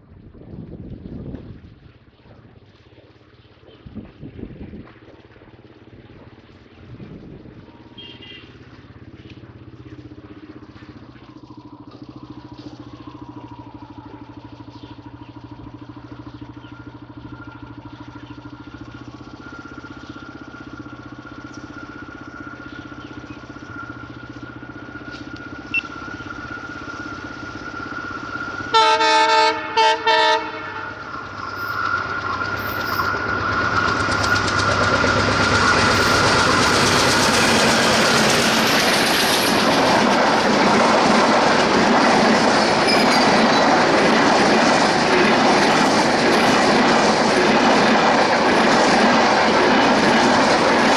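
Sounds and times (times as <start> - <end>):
diesel locomotive engine running: 0.0 - 50.9
train horn blasts: 7.9 - 8.6, 28.6 - 31.1.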